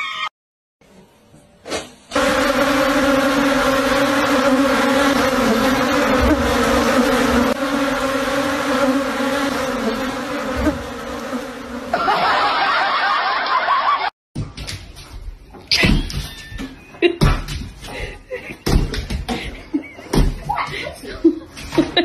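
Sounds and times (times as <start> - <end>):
swarm of wasps buzzing: 2.2 - 12.0.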